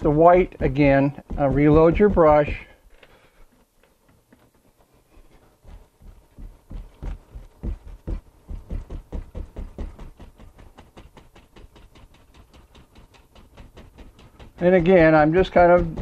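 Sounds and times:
paintbrush tapping on canvas: 0.0s - 3.2s, 5.3s - 16.0s.

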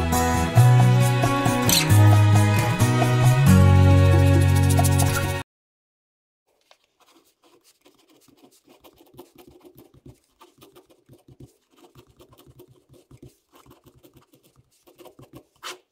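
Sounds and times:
pen scratching on paper: 4.4s - 5.3s, 6.6s - 15.9s.

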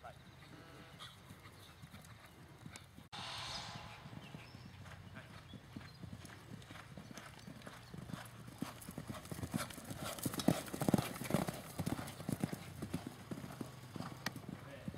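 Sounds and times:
horse hoofbeats on dirt: 5.3s - 14.9s.

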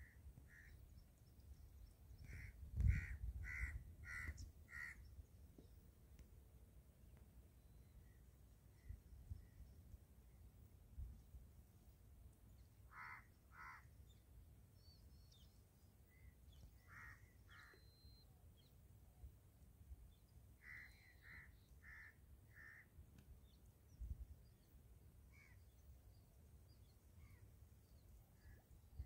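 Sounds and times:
low wind rumble: 1.8s - 5.3s
crows cawing: 2.2s - 5.0s, 12.9s - 13.9s, 16.8s - 17.8s, 20.6s - 22.9s.

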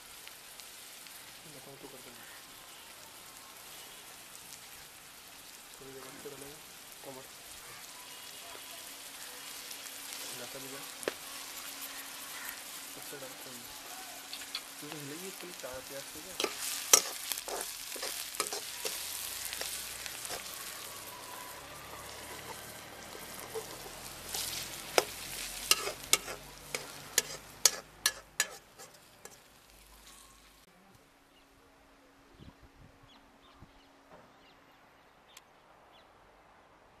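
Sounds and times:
onions sizzling in hot oil: 0.0s - 30.7s
metal spoon clinking on pan: 16.4s - 20.5s, 24.9s - 29.4s.

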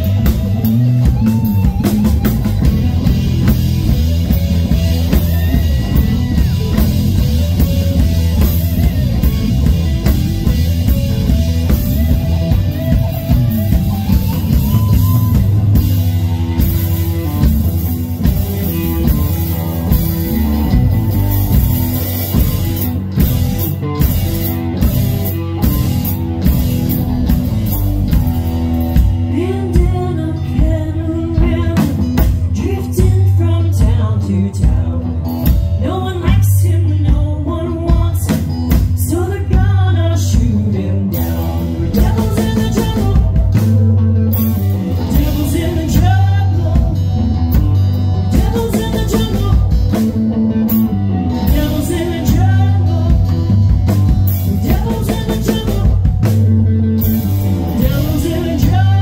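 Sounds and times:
person singing: 0.0s - 9.8s, 29.0s - 59.0s
rock band playing: 0.0s - 59.0s.

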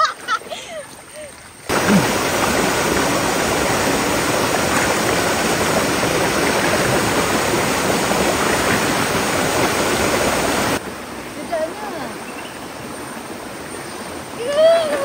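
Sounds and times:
river rushing over rocks: 1.7s - 12.0s.

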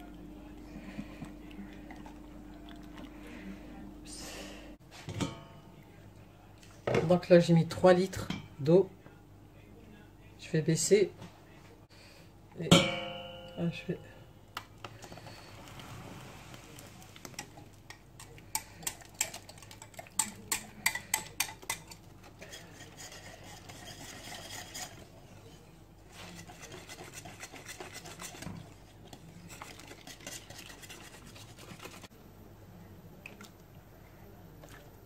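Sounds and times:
whisk clinking against metal pot: 18.5s - 25.1s, 26.1s - 28.6s, 29.5s - 32.0s
whisk swishing in liquid: 18.5s - 32.1s.

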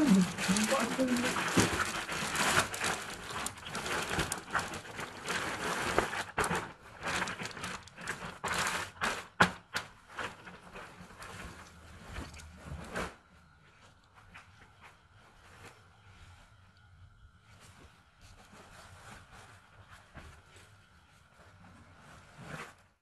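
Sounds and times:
plastic bag crinkling: 0.0s - 13.1s.

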